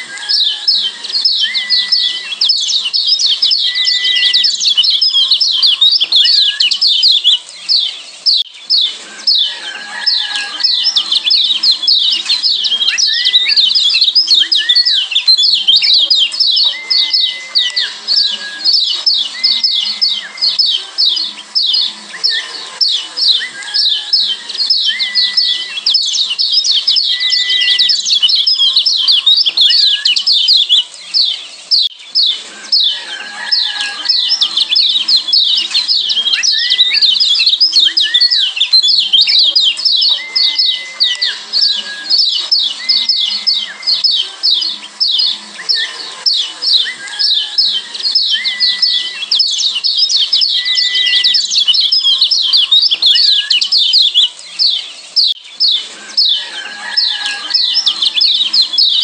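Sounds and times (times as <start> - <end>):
bird rapid high chirps: 0.0 - 59.0.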